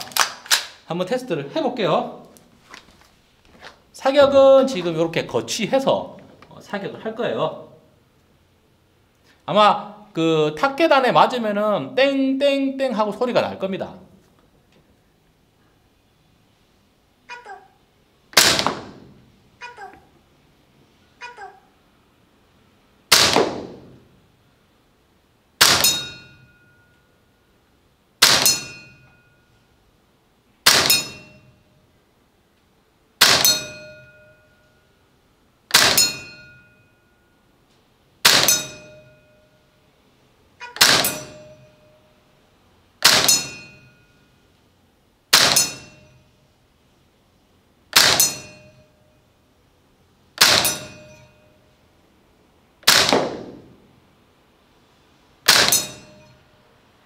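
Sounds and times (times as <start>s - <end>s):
airsoft rifle shots: 18.3s - 19.2s, 23.1s - 24.1s, 25.6s - 26.3s, 28.2s - 28.8s, 30.6s - 31.4s, 33.2s - 34.0s, 35.7s - 36.5s, 38.2s - 39.1s, 40.7s - 41.7s, 43.0s - 43.8s, 45.3s - 46.0s, 47.9s - 48.8s, 50.4s - 51.2s, 52.8s - 53.9s, 55.4s - 56.3s
pellet striking steel target: 25.6s - 26.7s, 28.2s - 29.2s, 30.7s - 31.5s, 33.2s - 34.2s, 35.7s - 36.7s, 38.2s - 39.3s, 40.7s - 41.9s, 43.0s - 44.1s, 45.3s - 46.2s, 48.0s - 49.0s, 50.4s - 51.4s, 55.5s - 56.4s.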